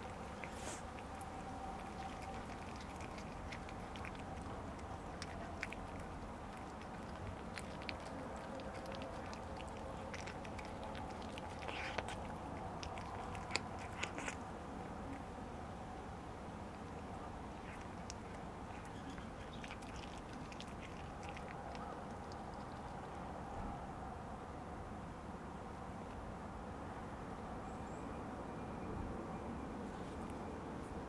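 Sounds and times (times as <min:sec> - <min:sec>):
cat chewing food: 0:00.0 - 0:23.6.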